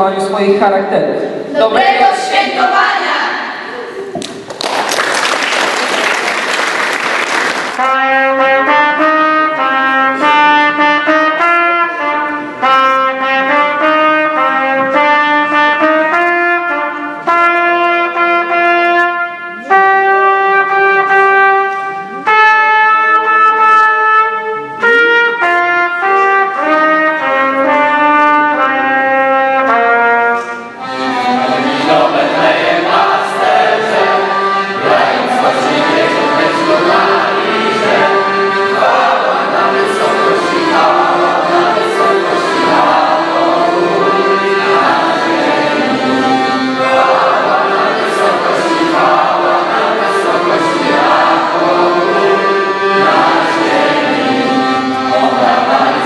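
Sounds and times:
applause: 0:04.2 - 0:07.8
solo trumpet melody: 0:07.4 - 0:56.0.

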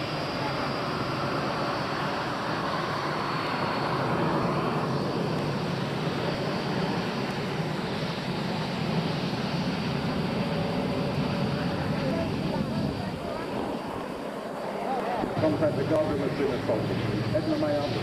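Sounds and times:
jet engines rushing with whine: 0:00.0 - 0:18.0.

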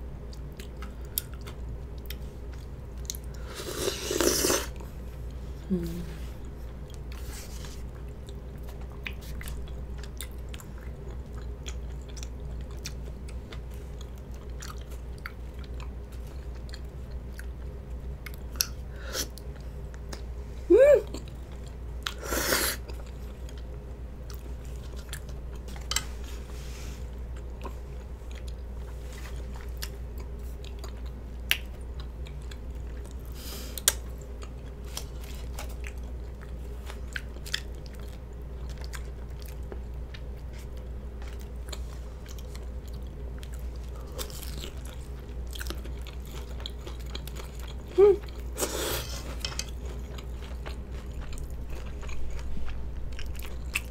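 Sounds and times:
chewing with lip smacks: 0:00.2 - 0:03.4, 0:06.4 - 0:20.3, 0:22.8 - 0:26.2, 0:27.3 - 0:53.9
loud slurp of noodles: 0:03.5 - 0:04.7.

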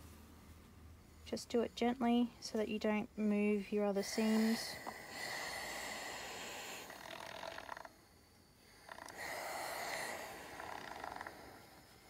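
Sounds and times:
steam iron hissing: 0:03.9 - 0:12.0.

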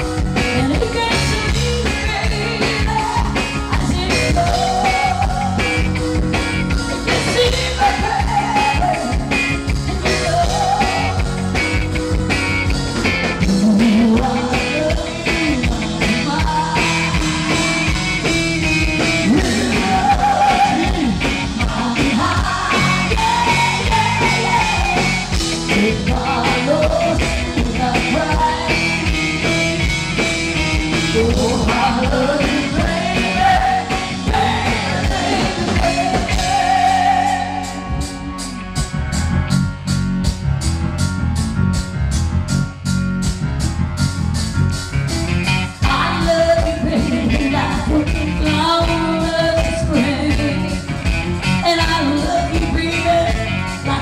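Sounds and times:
live rock band playing: 0:00.0 - 0:54.0
woman singing into microphone: 0:00.6 - 0:05.7, 0:07.1 - 0:09.4, 0:10.1 - 0:11.3, 0:13.5 - 0:17.6, 0:19.2 - 0:28.9, 0:31.1 - 0:38.2, 0:45.8 - 0:50.8, 0:51.6 - 0:54.0.

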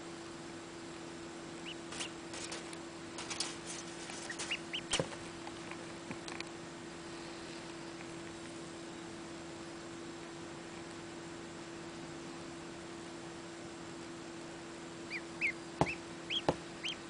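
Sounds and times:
steady low hum: 0:00.0 - 0:17.0
duckling peeping: 0:01.6 - 0:02.2, 0:04.2 - 0:05.0, 0:15.0 - 0:17.0.

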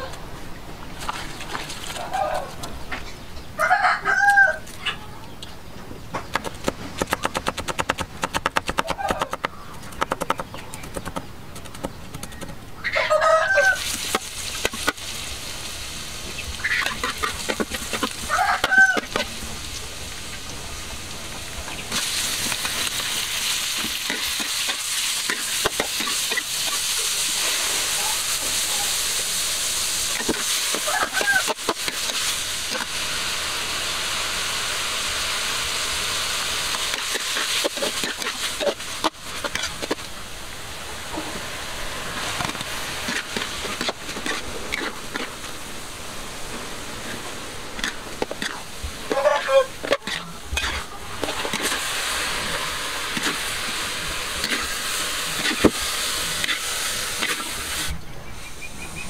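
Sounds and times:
chicken calling: 0:02.0 - 0:03.0, 0:03.6 - 0:05.4, 0:08.8 - 0:09.9, 0:12.8 - 0:13.9, 0:16.6 - 0:19.2, 0:30.7 - 0:31.8, 0:49.0 - 0:51.2
oil sizzling in a wok: 0:13.5 - 0:58.0
metal spatula stirring: 0:16.6 - 0:19.3, 0:22.4 - 0:27.5, 0:30.0 - 0:33.0, 0:36.7 - 0:40.1, 0:42.4 - 0:45.4, 0:47.8 - 0:51.9, 0:53.1 - 0:53.6, 0:54.4 - 0:57.5.

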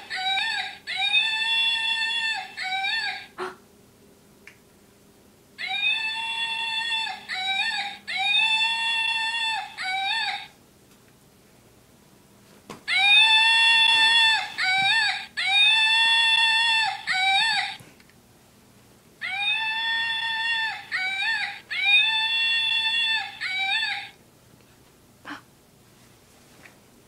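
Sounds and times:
electronic toy squealing: 0:00.0 - 0:03.3, 0:05.6 - 0:10.5, 0:12.9 - 0:17.8, 0:19.2 - 0:24.2.

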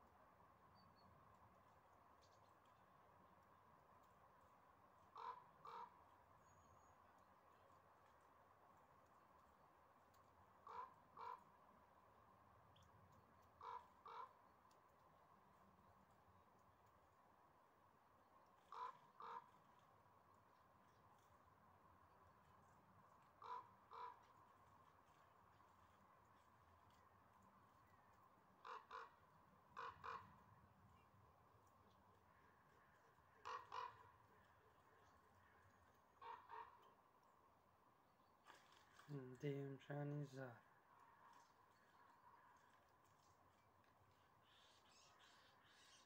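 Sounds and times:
crow cawing: 0:05.1 - 0:06.0, 0:10.6 - 0:11.4, 0:13.6 - 0:14.4, 0:18.7 - 0:19.6, 0:23.4 - 0:24.3, 0:28.6 - 0:29.2, 0:29.8 - 0:30.3, 0:32.3 - 0:34.5, 0:36.2 - 0:36.9.

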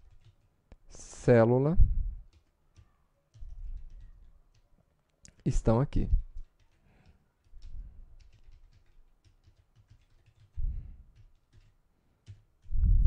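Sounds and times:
keyboard keys clicking: 0:00.0 - 0:00.5, 0:02.3 - 0:04.7, 0:06.2 - 0:12.8
dull low thumps: 0:12.8 - 0:13.0.

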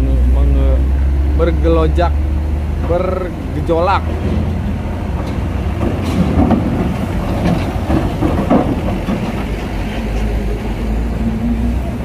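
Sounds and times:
ferry engines rumbling: 0:00.0 - 0:12.0
metal clanks and clatter: 0:04.0 - 0:10.4.

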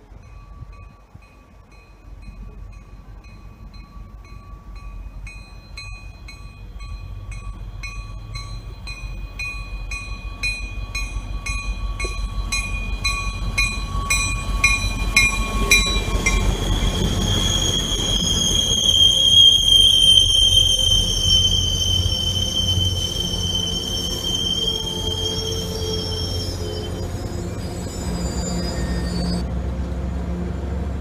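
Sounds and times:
crossing warning bell ringing: 0:00.0 - 0:29.4
train rumble: 0:00.0 - 0:31.0
high steady squeal: 0:00.2 - 0:29.5.

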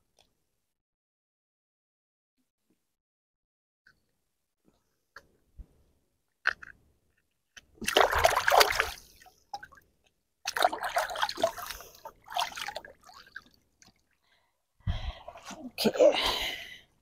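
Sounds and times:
water splashing as fish is rinsed: 0:07.8 - 0:09.3, 0:10.5 - 0:13.6.

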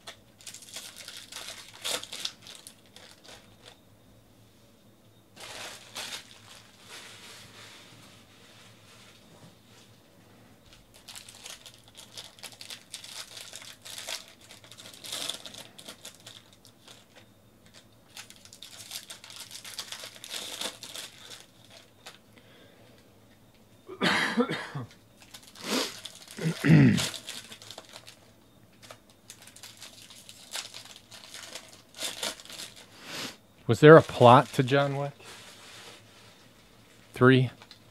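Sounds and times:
foil packs crinkling and tearing: 0:00.0 - 0:03.8, 0:05.4 - 0:07.7, 0:10.7 - 0:22.2, 0:25.2 - 0:33.0, 0:33.9 - 0:36.0
person coughing: 0:23.9 - 0:24.9, 0:26.4 - 0:27.1.

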